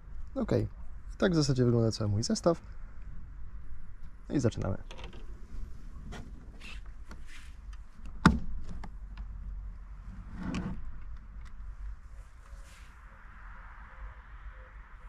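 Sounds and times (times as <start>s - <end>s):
short rustle: 5.2s - 8.0s, 12.0s - 13.2s.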